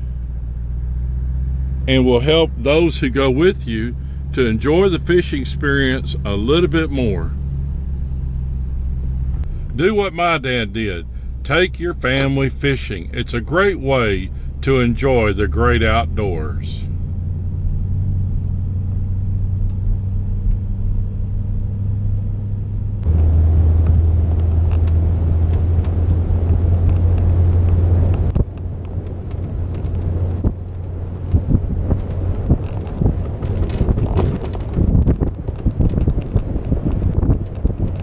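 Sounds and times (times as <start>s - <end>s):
truck road noise rumble: 0.0s - 38.0s
trailer knocks and rattles: 29.3s - 38.0s.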